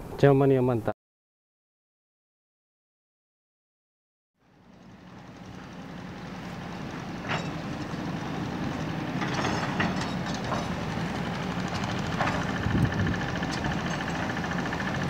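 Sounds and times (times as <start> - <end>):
engine hum: 4.4 - 15.0.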